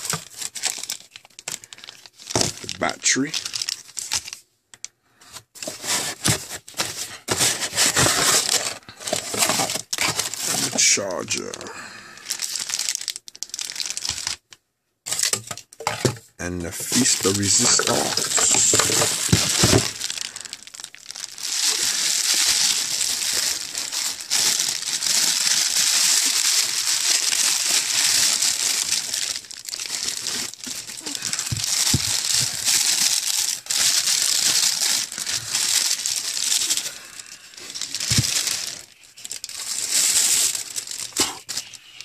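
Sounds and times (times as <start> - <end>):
bubble wrap and plastic bag crinkling: 0.0 - 4.4, 5.3 - 42.0.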